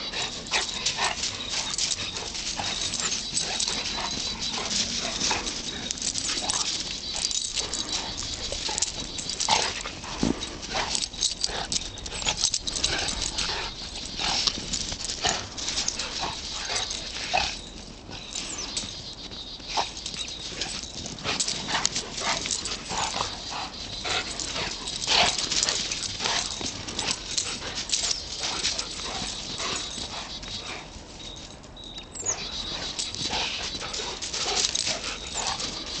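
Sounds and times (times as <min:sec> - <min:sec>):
dogs growling and vocalizing: 0:00.0 - 0:18.9, 0:19.6 - 0:31.0, 0:32.1 - 0:36.0.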